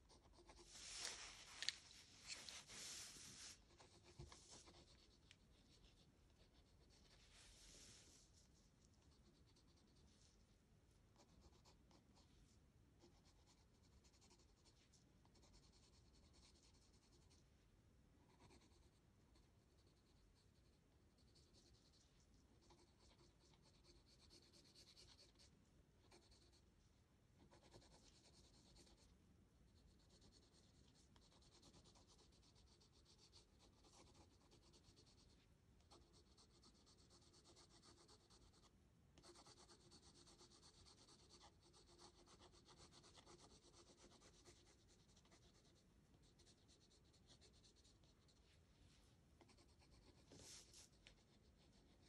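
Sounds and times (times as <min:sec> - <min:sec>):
pencil shading on paper: 0:00.0 - 0:01.2, 0:02.6 - 0:07.2, 0:18.3 - 0:22.0, 0:22.6 - 0:26.6, 0:27.4 - 0:29.1, 0:29.7 - 0:48.5, 0:49.4 - 0:52.0.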